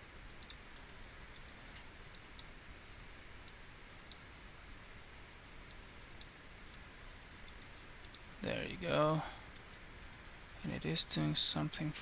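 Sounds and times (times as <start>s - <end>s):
low room hiss: 0.0s - 12.0s
computer mouse clicks: 0.4s - 2.5s, 7.4s - 8.3s.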